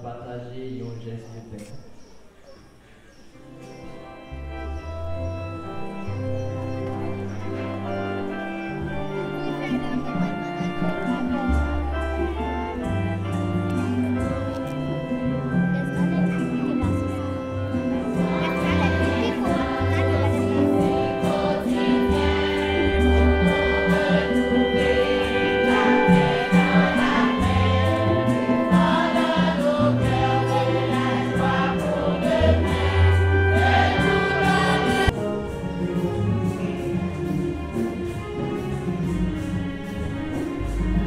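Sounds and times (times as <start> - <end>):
instrumental accompaniment with bass: 3.4 - 41.0
choir singing a hymn: 7.1 - 35.2.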